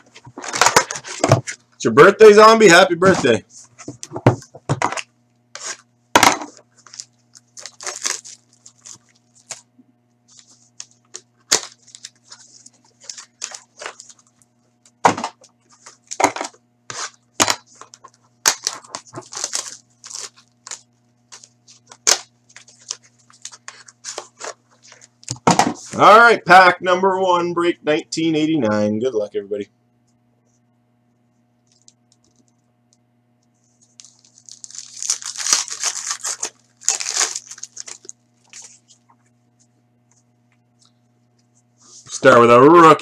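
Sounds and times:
boxes handled and set down: 0:00.0 - 0:01.6, 0:03.0 - 0:05.1, 0:25.3 - 0:26.0
steady low hum: 0:00.0 - 0:43.0
plastic shrink-wrap tearing and crinkling: 0:06.5 - 0:09.7, 0:10.4 - 0:14.4, 0:16.9 - 0:25.1, 0:33.8 - 0:39.0.

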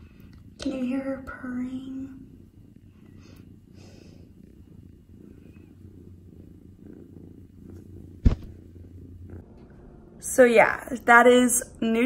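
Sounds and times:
kitten purring: 0:00.0 - 0:12.0
sharp knock: 0:08.2 - 0:08.5.

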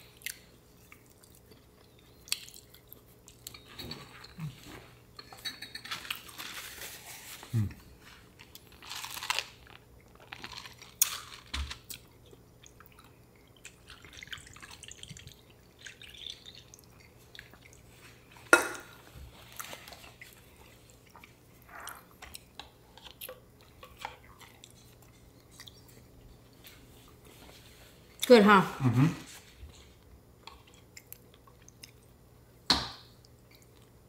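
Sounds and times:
chewing: 0:00.1 - 0:05.0, 0:19.3 - 0:26.7, 0:30.4 - 0:32.2.

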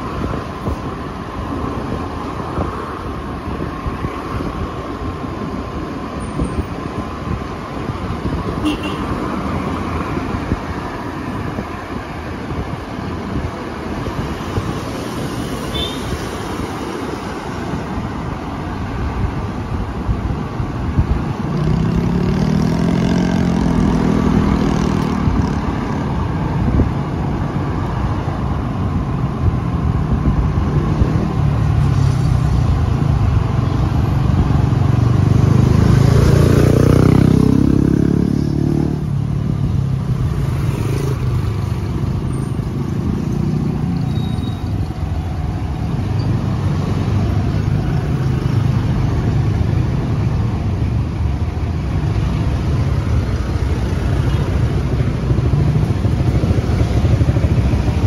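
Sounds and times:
road noise: 0:00.0 - 0:58.0
motorcycle engine revving: 0:35.2 - 0:39.1.

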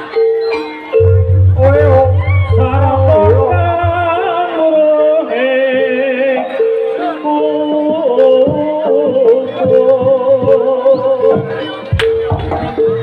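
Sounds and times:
gamelan music: 0:00.0 - 0:13.0
low pulsing hum: 0:01.2 - 0:04.3.

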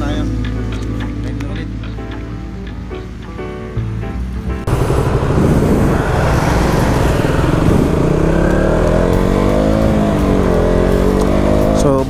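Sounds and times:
music: 0:00.0 - 0:04.8, 0:09.0 - 0:12.0
motorcycle engine accelerating: 0:04.4 - 0:12.0
wind rush: 0:04.7 - 0:10.6.

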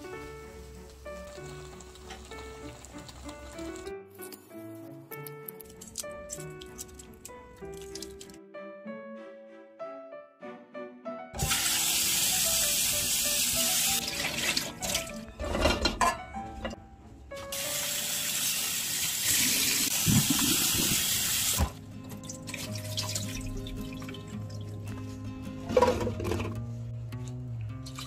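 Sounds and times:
soft background music: 0:00.0 - 0:20.6, 0:21.3 - 0:28.0.

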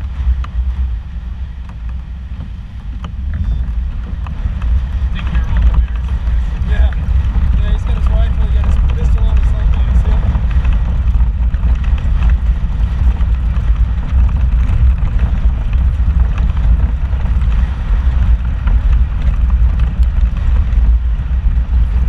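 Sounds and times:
engine and tyres rumbling on rock: 0:00.0 - 0:22.0
faint clicks and rattles: 0:01.6 - 0:22.0.

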